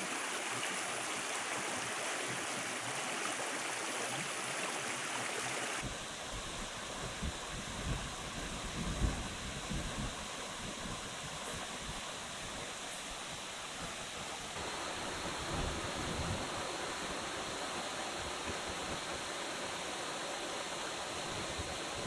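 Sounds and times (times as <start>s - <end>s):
stream rushing over rocks: 0.0s - 22.0s.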